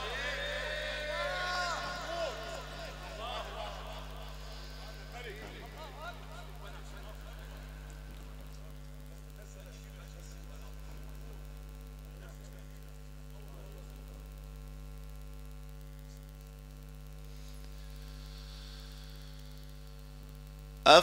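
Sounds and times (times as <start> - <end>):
electrical mains hum: 0.0 - 21.0.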